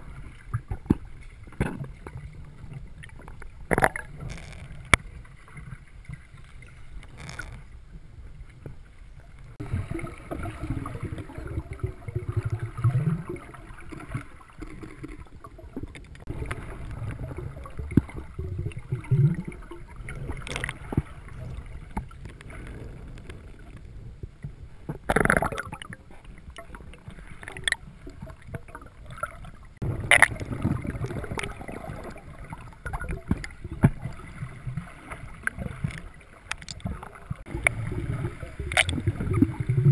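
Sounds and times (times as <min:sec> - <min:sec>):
muffled underwater water rumbling: 0:00.0 - 0:39.9.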